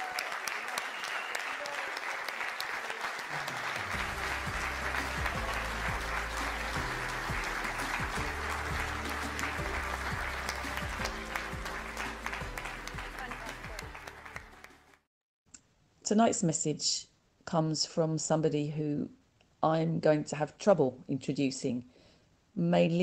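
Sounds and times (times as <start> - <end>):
audience applauding: 0.0 - 15.1
background music with deep bass: 3.9 - 14.6.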